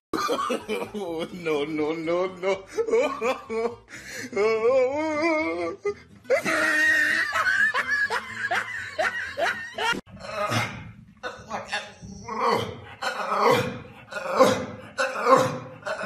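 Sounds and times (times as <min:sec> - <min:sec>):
people laughing hard: 0:00.2 - 0:04.3, 0:05.5 - 0:10.1.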